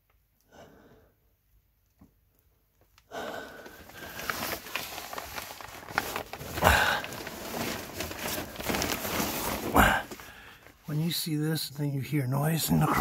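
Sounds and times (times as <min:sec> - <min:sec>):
plastic sheeting crinkling: 0:02.7 - 0:11.2.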